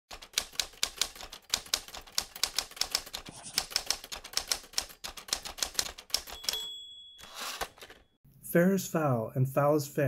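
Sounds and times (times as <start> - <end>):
typewriter keys clacking: 0.1 - 8.0.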